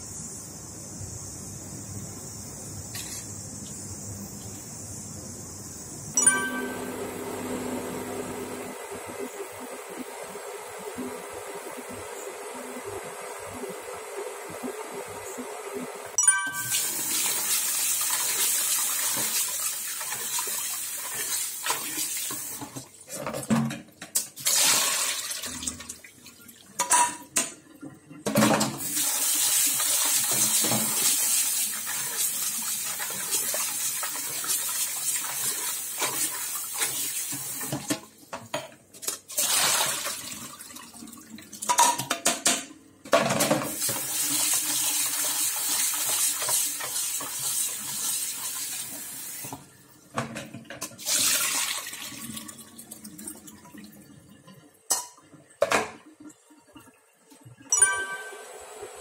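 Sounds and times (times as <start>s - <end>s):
pan clinking: 6.2s - 7.0s, 57.7s - 58.6s
tap water running into a pan: 16.6s - 42.6s, 43.3s - 57.6s.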